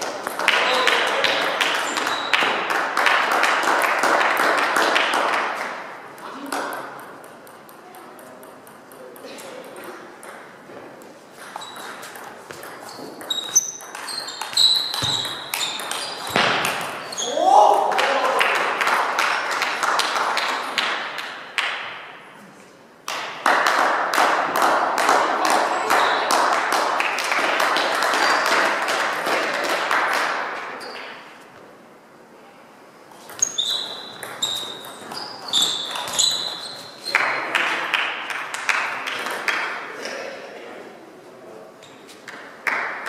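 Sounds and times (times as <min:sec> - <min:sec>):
table tennis ball bouncing: 0:00.0 - 0:03.4, 0:06.1 - 0:17.2, 0:33.3 - 0:39.7
sports hall noise: 0:00.0 - 0:43.0.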